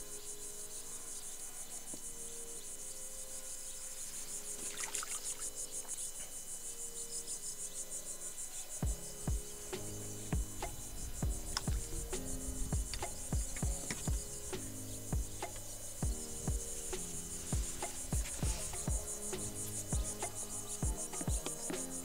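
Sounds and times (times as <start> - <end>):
insects chirping: 0.0 - 22.0.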